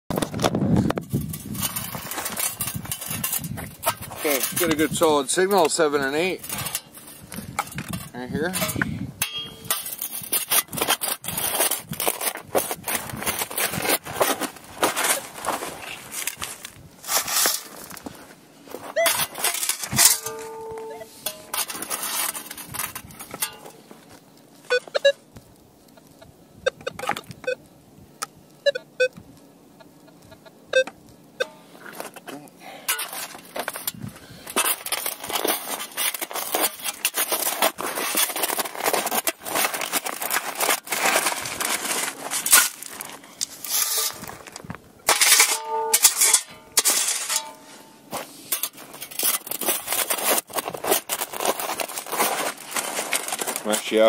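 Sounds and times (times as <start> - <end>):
scoop crunching through stones: 0.2 - 8.8, 9.6 - 23.8, 32.9 - 54.0
metal detector beeps: 18.9 - 19.3, 20.1 - 21.2, 24.7 - 25.2, 26.0 - 27.6, 28.6 - 29.2, 29.8 - 31.6.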